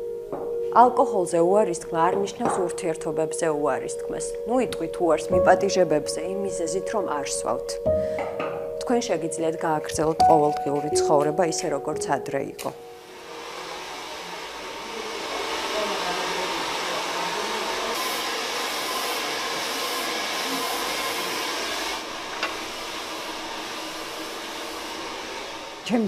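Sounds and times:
hair dryer blowing: 0:13.0 - 0:26.0.

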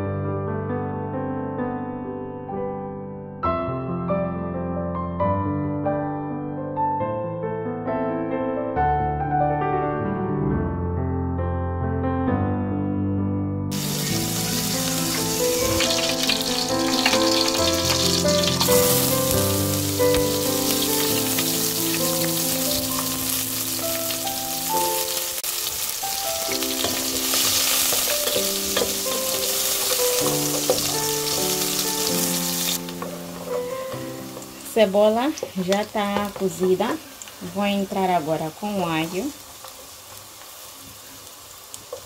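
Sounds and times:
background piano music: 0:00.0 - 0:39.4
onion sizzling in oil: 0:13.7 - 0:42.0.

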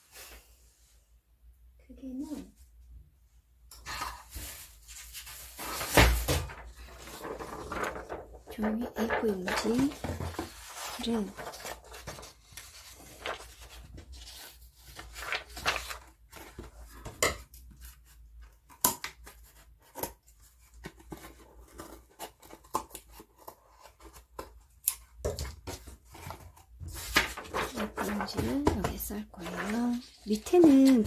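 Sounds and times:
paper rustling on a wooden table: 0:03.9 - 0:31.0.

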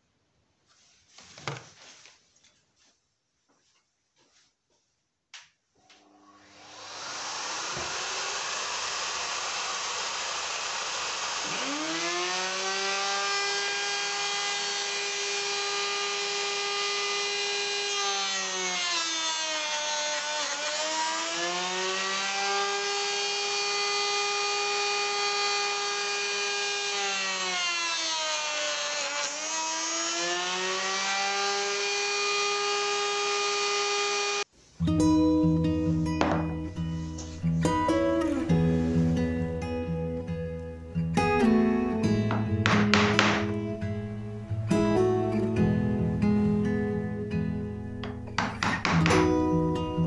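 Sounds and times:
power tool motor whine: 0:06.1 - 0:34.5.

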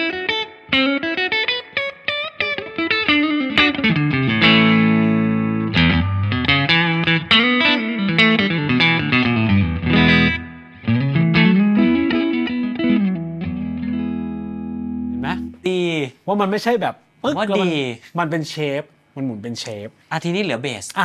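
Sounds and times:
clean electric guitar: 0:00.0 - 0:15.7.

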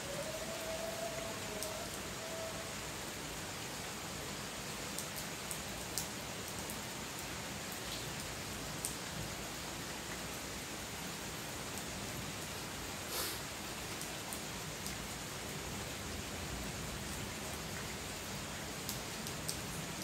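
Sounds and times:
rain falling on paving: 0:00.0 - 0:20.0.

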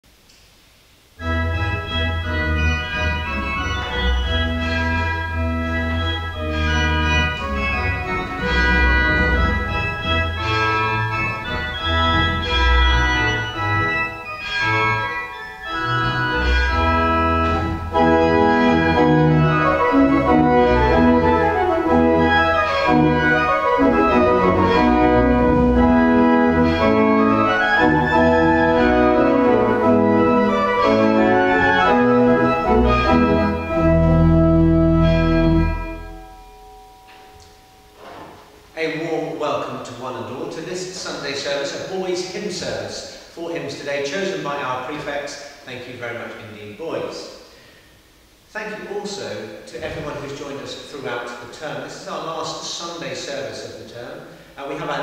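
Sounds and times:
church organ chords: 0:01.2 - 0:43.2.

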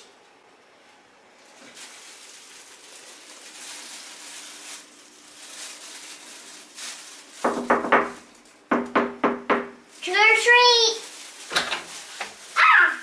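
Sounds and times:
plastic bag rustling: 0:00.7 - 0:08.7, 0:09.8 - 0:13.0
knuckle knocks on door: 0:07.5 - 0:09.8.

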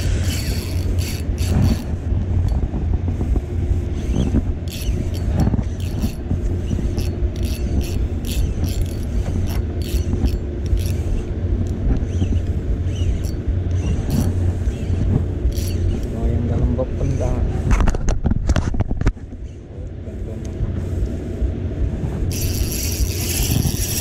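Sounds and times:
fishing reel cranking and clicking: 0:00.0 - 0:02.6, 0:04.0 - 0:16.1, 0:22.3 - 0:24.0
steady low rumble: 0:00.0 - 0:24.0.

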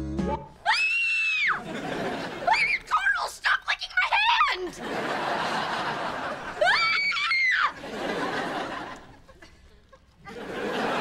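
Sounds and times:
studio audience laughing: 0:01.6 - 0:02.7, 0:04.7 - 0:07.1, 0:07.7 - 0:11.0.

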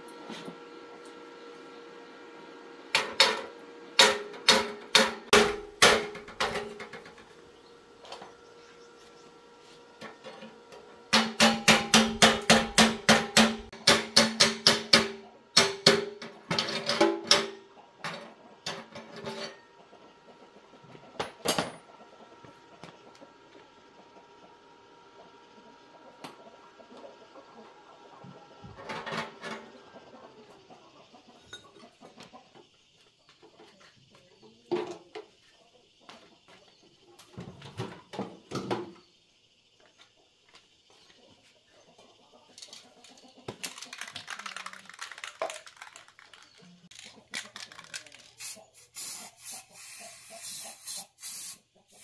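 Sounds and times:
hammer striking metal: 0:04.0 - 0:06.2, 0:11.1 - 0:16.2.

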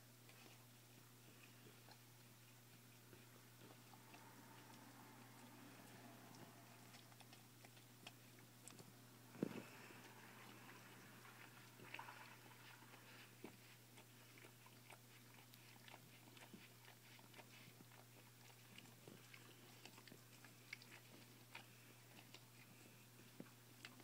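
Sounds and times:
dog licking and biting: 0:05.4 - 0:24.0.

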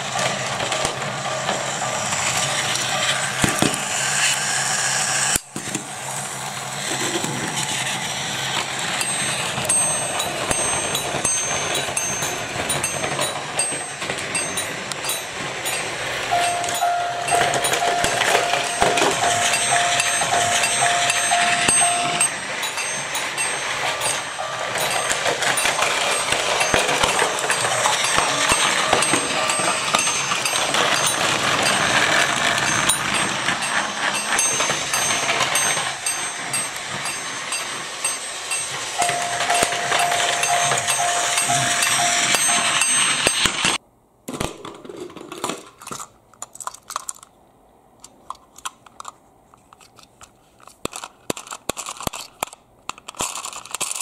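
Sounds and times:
toy train wheels rattling: 0:00.0 - 0:05.4, 0:06.1 - 0:43.8, 0:48.3 - 0:54.0
toy train motor whir: 0:00.2 - 0:43.8, 0:50.6 - 0:54.0
steady tone: 0:08.9 - 0:43.8
plastic toy clicks: 0:45.4 - 0:47.3, 0:48.0 - 0:54.0.

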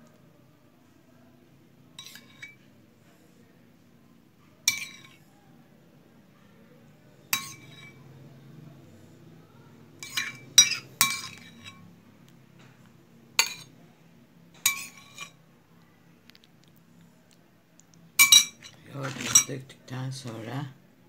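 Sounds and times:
metal spoon clinking on dish: 0:02.0 - 0:02.6, 0:04.6 - 0:05.2, 0:07.3 - 0:08.0, 0:10.0 - 0:11.9, 0:13.4 - 0:13.7, 0:14.6 - 0:15.4, 0:18.2 - 0:19.6.

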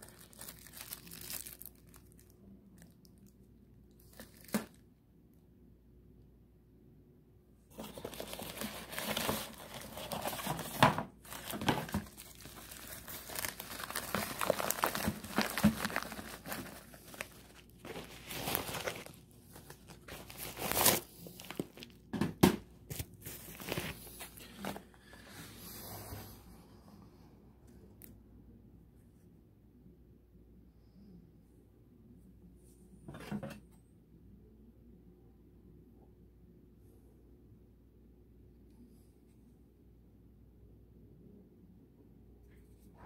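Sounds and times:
plastic crackling and ripping: 0:00.0 - 0:04.8, 0:07.8 - 0:22.1
plastic packaging crinkling: 0:00.0 - 0:04.8, 0:07.7 - 0:22.1, 0:22.9 - 0:25.0.

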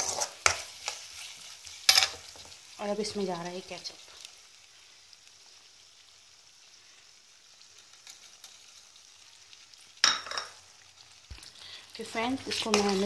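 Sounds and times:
spoon scraping wok: 0:00.0 - 0:02.6, 0:12.1 - 0:13.0
vegetables sizzling in a wok: 0:00.0 - 0:13.0.

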